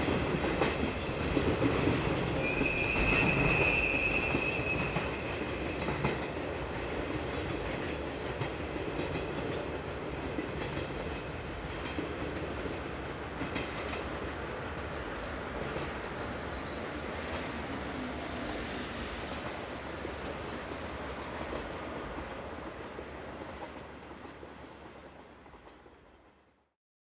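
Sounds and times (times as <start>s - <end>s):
train wheels clattering over track: 0.0s - 26.5s
high wheel squeal: 2.4s - 5.3s.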